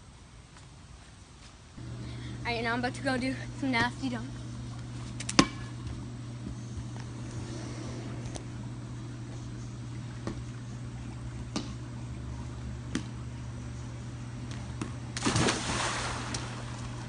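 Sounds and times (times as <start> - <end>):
steady low hum: 0.0 - 17.0
person splashing into pool: 15.2 - 17.0.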